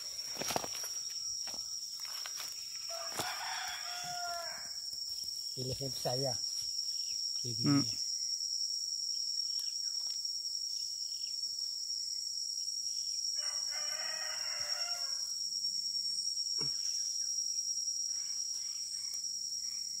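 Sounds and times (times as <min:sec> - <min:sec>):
high-pitched insect drone: 0:00.0 - 0:20.0
rooster crowing: 0:02.8 - 0:04.8, 0:13.4 - 0:15.3.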